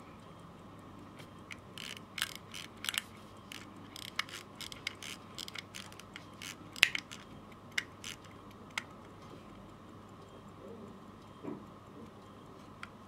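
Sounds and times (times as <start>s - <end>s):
watch ratchet clicking: 1.5s - 9.2s.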